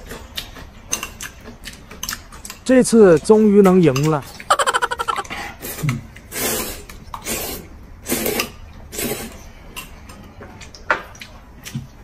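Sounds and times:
noodles being slurped: 5.1s - 9.4s.

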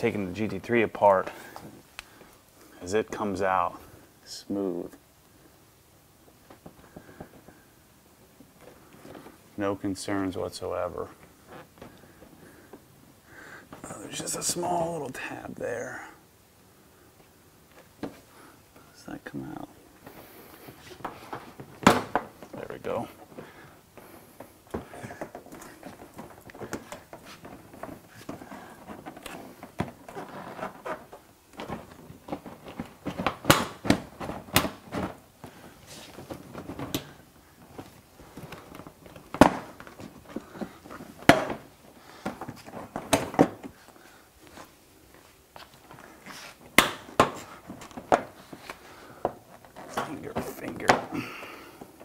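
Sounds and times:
handling noise: 19.8s - 52.0s.

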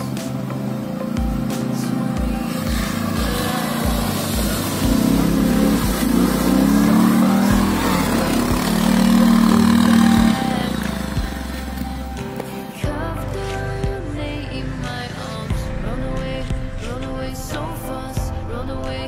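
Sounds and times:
atv engine revving: 0.0s - 18.1s
mud splashing: 1.4s - 12.3s.

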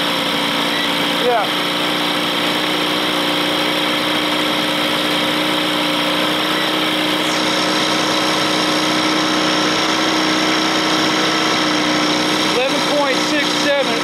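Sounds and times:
outboard motor idling: 0.0s - 14.0s.

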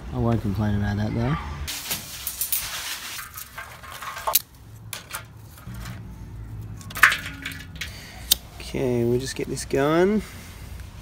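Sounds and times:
sticks and metal grate clinking: 1.7s - 8.6s.

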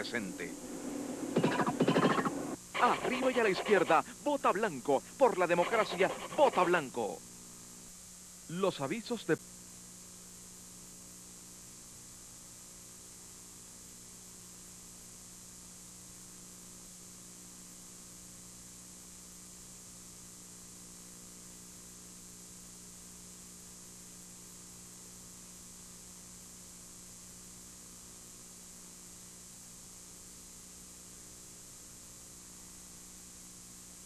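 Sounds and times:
high hiss: 0.0s - 7.2s
low electrical hum: 0.0s - 34.0s.

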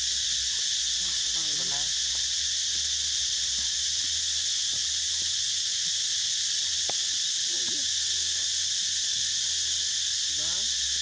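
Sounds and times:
insect chorus drone: 0.0s - 11.0s.

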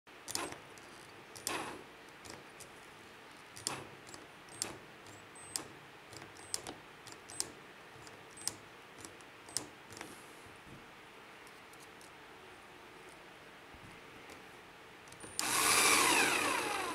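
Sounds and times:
drill trigger clicking: 3.6s - 7.5s, 15.1s - 16.9s.

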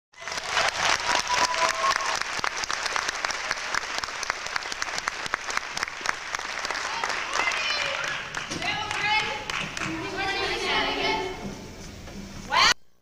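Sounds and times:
audience applauding: 0.1s - 10.3s
crowd cheering: 0.1s - 11.2s.

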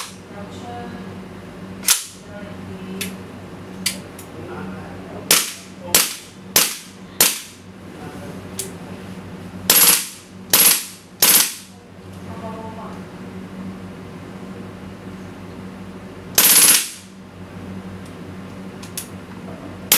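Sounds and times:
rapid fire bursts: 9.7s - 11.7s, 16.4s - 17.0s.

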